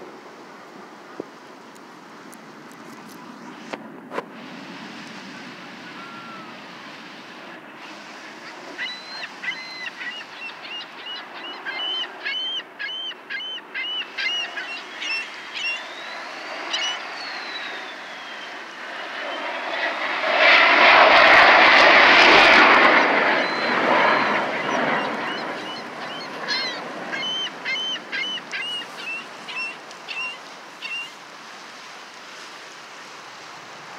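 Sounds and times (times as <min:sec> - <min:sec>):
jet engine overhead: 0:00.0 - 0:33.9
bird calling: 0:05.8 - 0:06.6, 0:08.4 - 0:18.8, 0:23.3 - 0:31.2.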